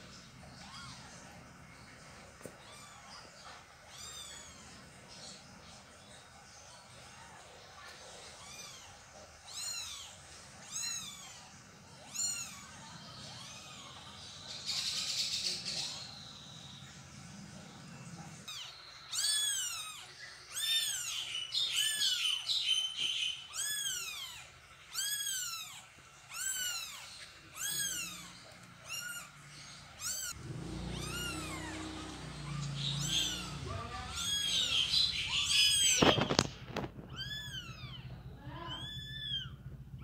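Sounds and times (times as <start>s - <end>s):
kittens mewing: 0.4s - 1.6s, 2.2s - 5.4s, 6.6s - 16.2s, 17.9s - 22.5s, 23.4s - 40.0s.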